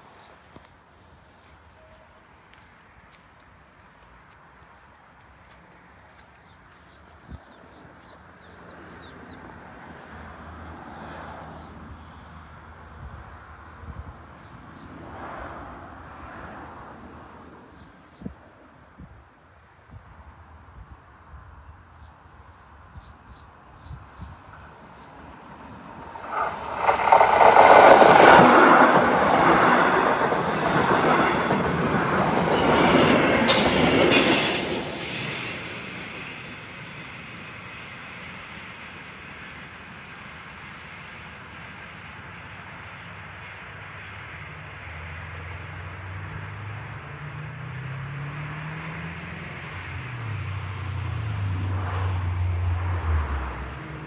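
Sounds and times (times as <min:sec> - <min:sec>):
electric train passing: 0:24.0 - 0:54.0
wheel squeal: 0:32.5 - 0:41.4.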